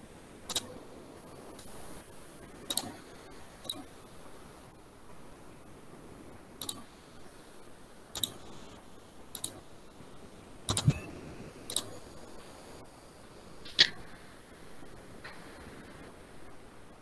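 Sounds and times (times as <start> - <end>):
computer clicks: 0.5 - 0.8, 2.7 - 3.0, 3.6 - 3.9, 6.6 - 6.9, 8.2 - 8.5, 9.3 - 9.6, 10.7 - 12.0.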